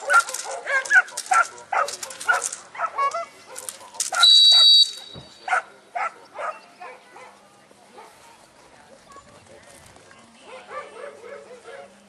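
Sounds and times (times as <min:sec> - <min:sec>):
dog barking: 0:00.0 - 0:04.7, 0:05.5 - 0:07.4, 0:10.4 - 0:12.0
shrill whistle: 0:04.2 - 0:05.4.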